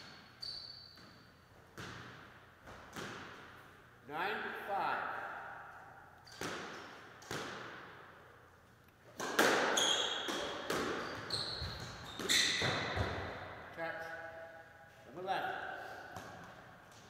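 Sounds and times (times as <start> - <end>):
squash ball strikes echoing: 1.0 - 3.7, 5.4 - 8.3, 9.1 - 13.7, 15.6 - 17.0
shoes squeaking on wooden floor: 9.7 - 13.1.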